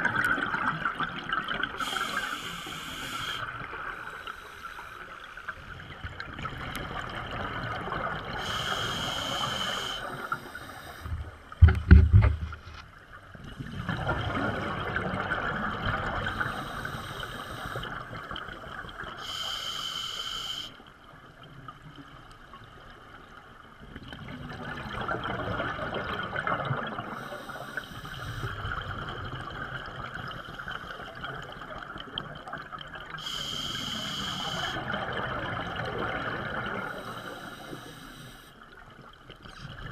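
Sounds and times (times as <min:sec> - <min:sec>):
regulator bubbles gurgling underwater: 0:00.0 - 0:19.6, 0:20.8 - 0:39.9.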